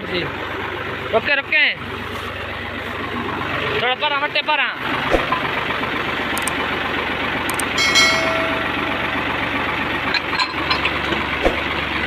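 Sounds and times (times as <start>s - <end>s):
tractor diesel engine idling: 0.0s - 12.0s
sharp metal clank: 7.7s - 10.9s.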